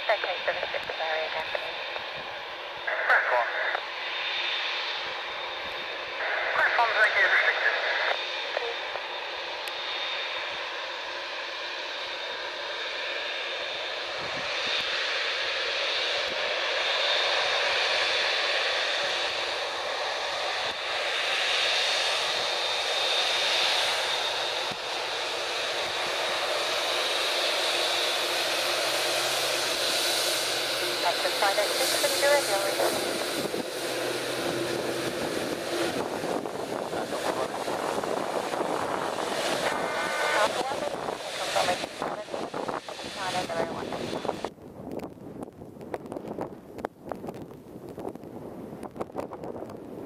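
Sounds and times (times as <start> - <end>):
jet engines at taxi power: 0.0 - 50.0
wind on microphone: 14.1 - 14.8, 31.9 - 50.0.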